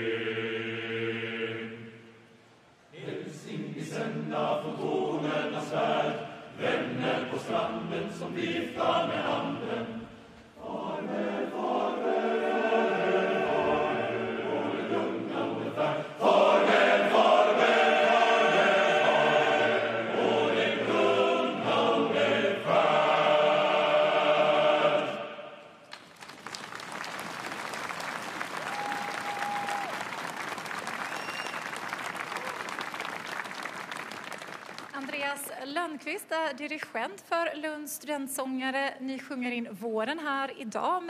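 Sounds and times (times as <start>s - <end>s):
male voice choir singing: 0.0s - 2.1s, 2.9s - 25.6s.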